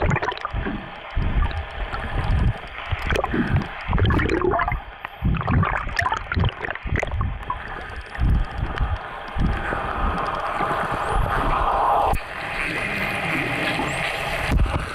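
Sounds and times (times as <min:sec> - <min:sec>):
underwater sloshing thumps: 0:00.0 - 0:08.5
bubbling: 0:00.0 - 0:10.2
water rushing: 0:00.0 - 0:12.4.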